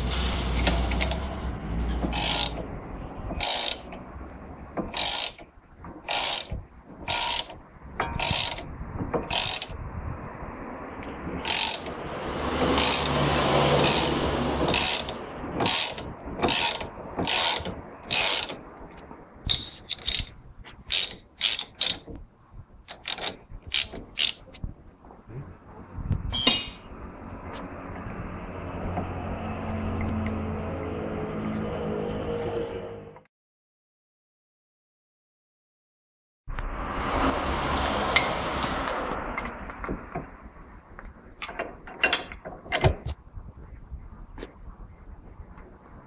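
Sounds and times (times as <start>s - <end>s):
ratchet wrench clicking: 2.1s - 2.7s, 3.4s - 3.9s, 4.9s - 5.5s, 6.1s - 8.7s, 9.3s - 9.8s, 11.4s - 11.9s, 12.8s - 13.2s, 13.8s - 18.6s, 19.5s - 22.1s, 22.9s - 24.4s.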